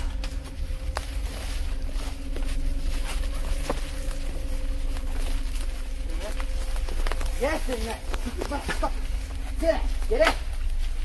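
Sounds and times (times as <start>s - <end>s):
footsteps brushing through weeds: 0.0s - 11.0s
low rumble on microphone: 0.0s - 11.0s.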